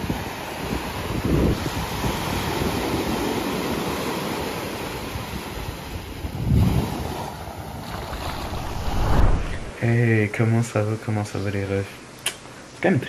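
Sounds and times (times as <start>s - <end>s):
wind on microphone: 0.0s - 3.0s, 6.2s - 9.8s
small waves breaking on beach: 0.0s - 9.8s
low rumble: 8.2s - 9.8s.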